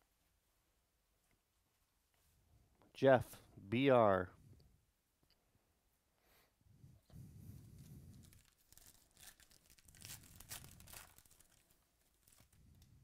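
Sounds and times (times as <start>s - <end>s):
soft handling rustle: 7.0s - 13.0s
foil pack tearing and crinkling: 8.2s - 12.5s.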